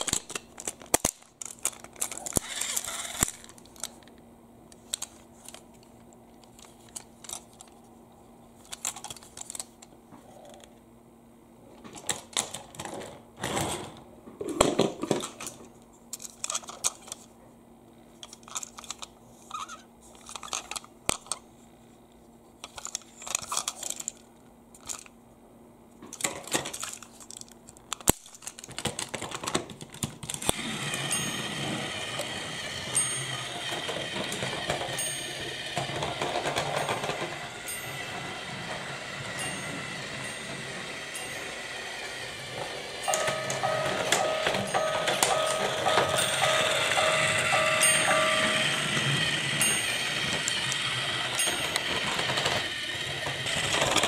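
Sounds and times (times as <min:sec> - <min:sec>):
toy train running noise: 0:00.0 - 0:04.0, 0:18.3 - 0:21.4, 0:26.2 - 0:54.0
plastic toy parts clicking and rattling: 0:00.0 - 0:04.1, 0:04.7 - 0:07.9, 0:08.6 - 0:10.7, 0:11.8 - 0:13.6, 0:14.5 - 0:17.3, 0:18.1 - 0:21.4, 0:22.6 - 0:25.2, 0:26.0 - 0:54.0.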